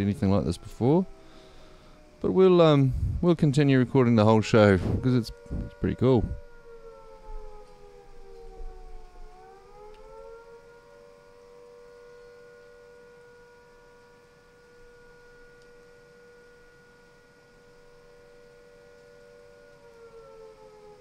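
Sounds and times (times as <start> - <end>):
faint two-note siren: 0.0 - 21.0
thunder rumble: 2.6 - 9.9.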